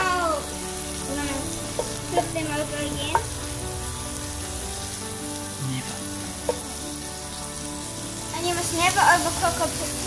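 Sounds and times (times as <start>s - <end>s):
prawns sizzling in frying pan: 0.0s - 10.0s
wooden spoon knocking pan: 1.7s - 3.6s, 6.4s - 6.7s.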